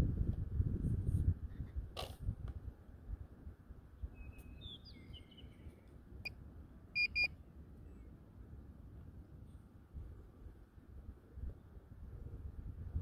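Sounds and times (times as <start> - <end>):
wind on microphone: 0.0 - 4.3, 10.0 - 13.0
short beeps: 7.0 - 7.3.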